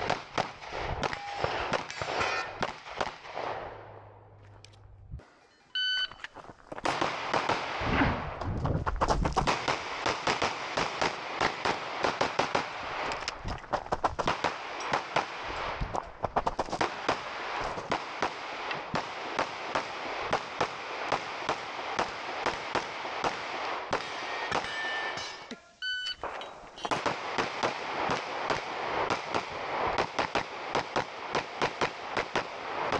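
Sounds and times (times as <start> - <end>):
rapid pistol shots: 0.0 - 3.9, 6.8 - 7.9, 9.0 - 13.1, 13.8 - 15.6, 26.9 - 32.9.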